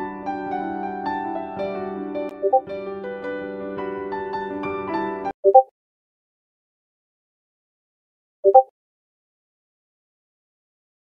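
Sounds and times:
soft instrumental music: 0.0 - 5.6.

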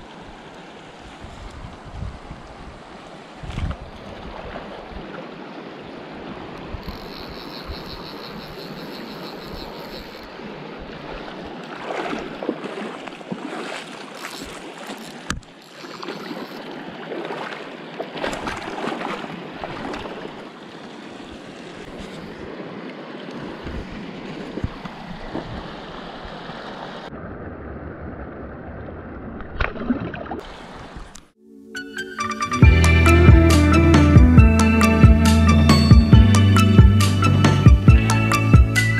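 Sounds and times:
river running: 0.0 - 38.9
water splashing: 2.9 - 31.4.

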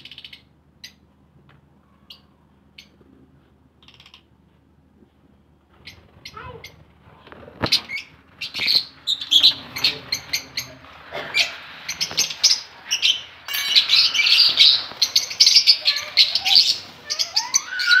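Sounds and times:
lovebirds chirping: 7.7 - 18.0.

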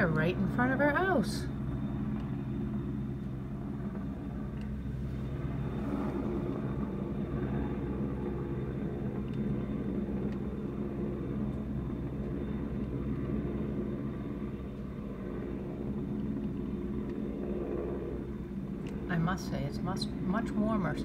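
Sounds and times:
helicopter hovering: 0.0 - 21.0.

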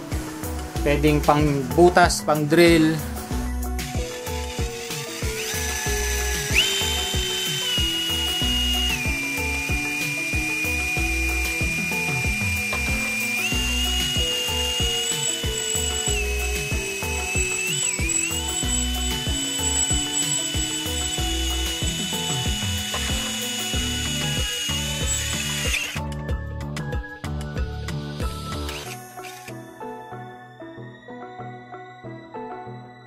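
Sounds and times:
background music with steady beat: 0.0 - 33.0
cordless drill motor whine: 3.3 - 26.4, 27.6 - 29.7.

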